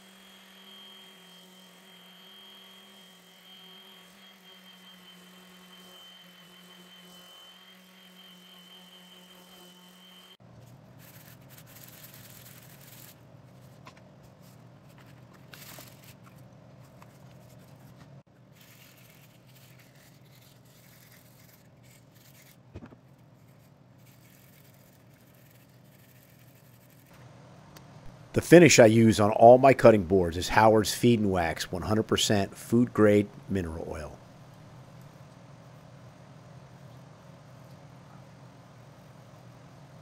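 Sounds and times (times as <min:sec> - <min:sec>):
orbital sander humming: 0:00.0 - 0:10.4
sandpaper rubbing wood by hand: 0:11.0 - 0:13.2.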